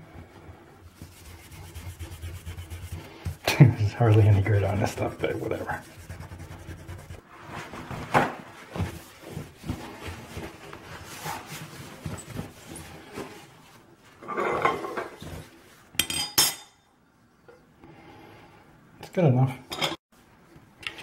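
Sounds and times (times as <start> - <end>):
scrubbing a porcelain sink: 0.1 - 13.4.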